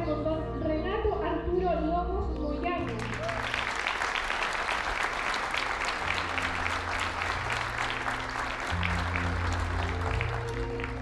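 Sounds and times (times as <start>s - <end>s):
audience applauding: 3.0s - 11.0s
music with slow low notes: 5.7s - 11.0s.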